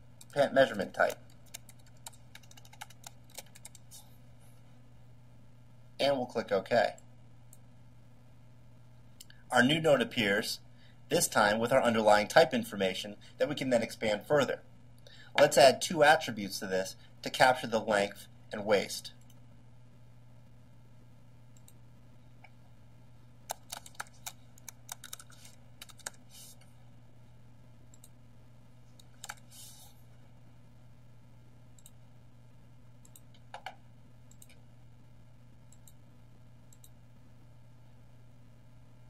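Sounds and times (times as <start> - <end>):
steady low hum: 0.0 - 39.0
computer keyboard typing: 0.2 - 3.9, 23.5 - 26.2, 29.0 - 29.5.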